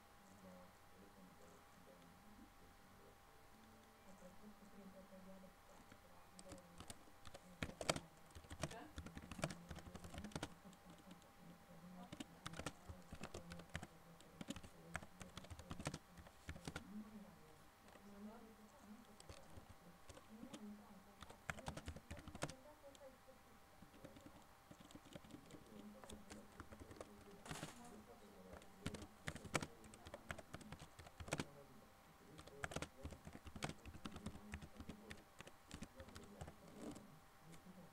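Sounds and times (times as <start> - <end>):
steady low hum: 0.0 - 37.9
computer keyboard typing: 5.8 - 11.3, 12.0 - 17.0, 19.0 - 23.0, 23.8 - 31.5, 32.3 - 37.0.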